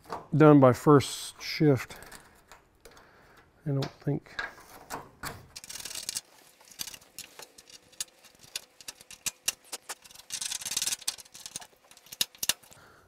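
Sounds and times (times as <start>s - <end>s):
metal scraper scraping sealer: 5.6s - 12.7s
clicks of bits breaking off: 5.6s - 12.8s.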